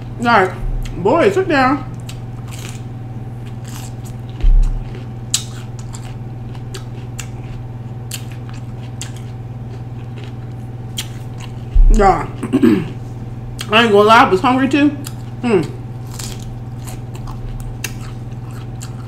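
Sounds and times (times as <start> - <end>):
steady low hum: 0.0 - 19.0
bell pepper crunching: 1.9 - 13.0, 15.0 - 19.0
dull thump: 4.4 - 4.8, 11.7 - 12.2.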